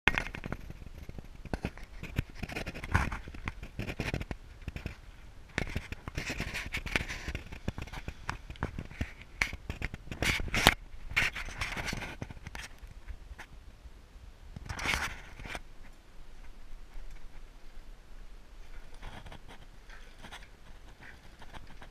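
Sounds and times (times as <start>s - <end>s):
camera scraping on metal frame: 0.2s - 5.0s, 5.6s - 12.8s, 14.7s - 15.6s, 18.7s - 21.9s.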